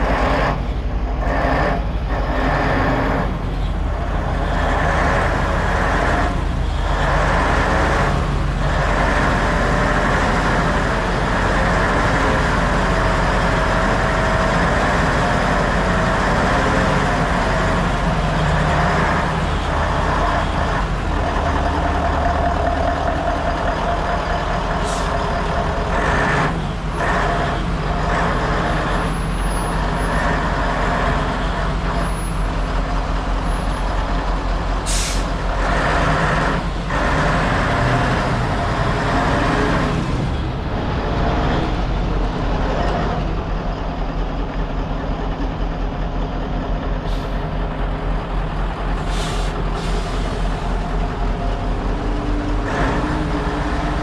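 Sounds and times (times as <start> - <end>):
truck diesel engine idling: 0.0 - 54.0
short hisses: 49.0 - 50.4.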